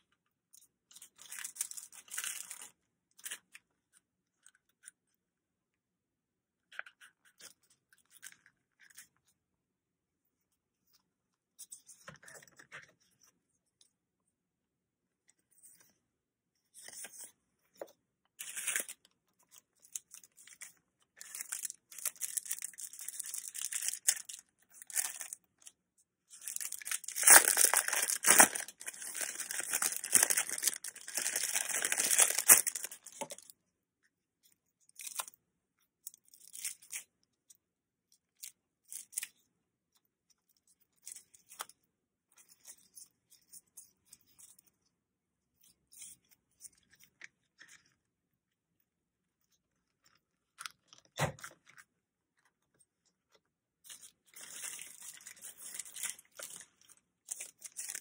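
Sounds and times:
plastic packaging crinkling: 21.2 - 25.7, 26.3 - 33.5, 54.0 - 58.0.

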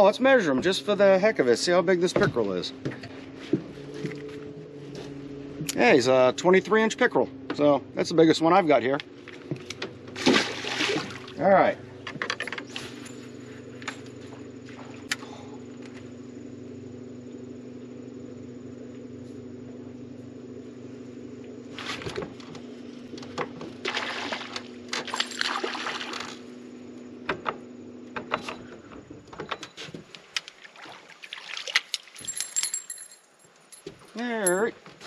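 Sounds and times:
water splashing: 10.1 - 11.5, 23.8 - 26.5, 30.2 - 32.4.

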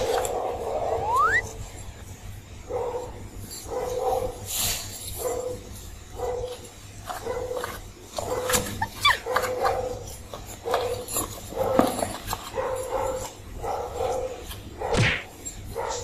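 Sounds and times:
kittens mewing: 0.8 - 1.5, 8.6 - 9.4.

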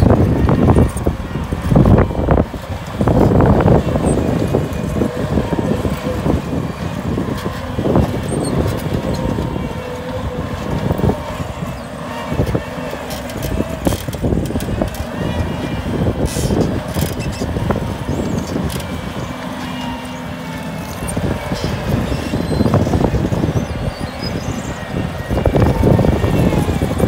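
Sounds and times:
diesel engine under load: 0.0 - 27.0.

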